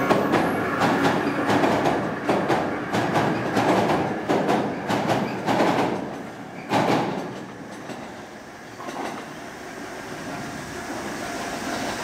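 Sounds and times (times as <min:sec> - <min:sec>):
train wheel clack: 0:00.0 - 0:09.4
train rumbling across steel bridge: 0:00.0 - 0:12.0.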